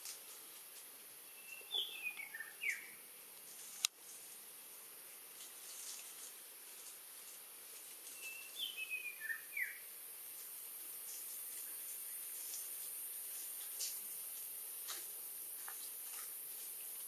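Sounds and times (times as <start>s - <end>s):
high insect hum: 0.0s - 17.0s
bird singing: 1.2s - 3.0s, 8.1s - 9.9s.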